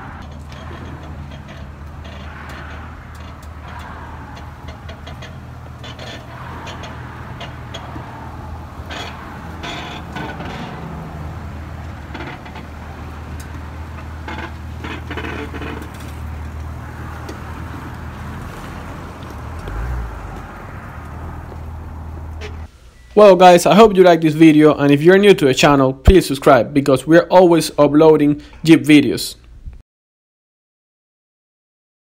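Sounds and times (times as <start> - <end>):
car engine running at low revs: 0.0 - 22.7.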